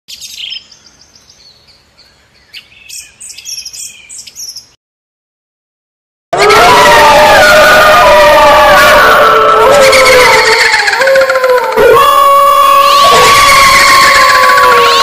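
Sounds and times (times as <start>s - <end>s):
small birds chirping: 0.1s - 4.8s.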